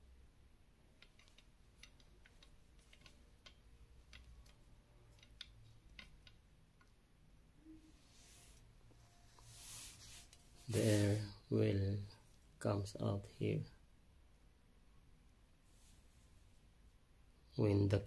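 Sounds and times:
brass fittings clicking: 1.0 - 7.0.

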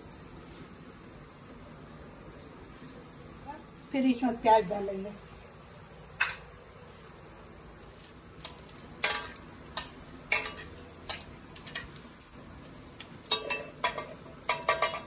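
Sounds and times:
oil sizzling: 0.0 - 15.0
metal spatula scraping a pan: 9.0 - 11.9.

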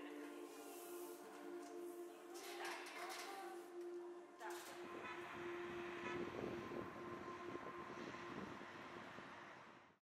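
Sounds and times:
steady hum: 3.7 - 10.0
distant city traffic: 4.7 - 10.0.

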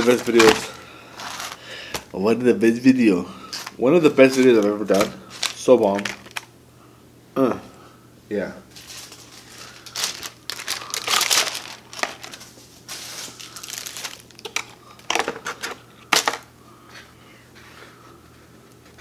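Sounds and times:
plastic packaging crinkling: 0.0 - 2.0, 3.5 - 6.5, 8.7 - 16.5.

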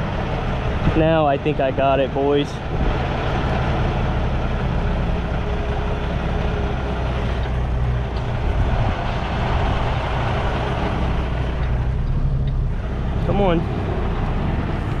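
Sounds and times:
diesel truck engine running: 0.0 - 15.0.

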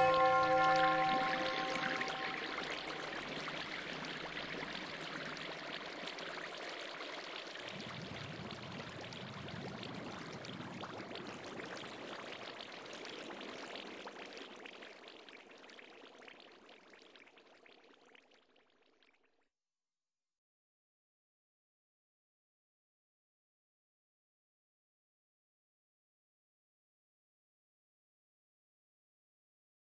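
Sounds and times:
flowing water rushing: 0.0 - 9.0.

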